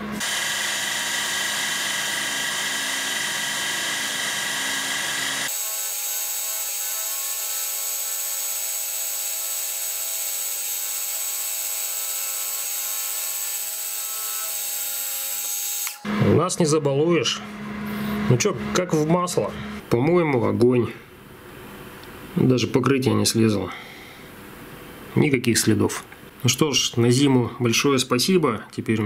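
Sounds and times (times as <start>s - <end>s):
drill whining into steel: 0.0s - 16.2s.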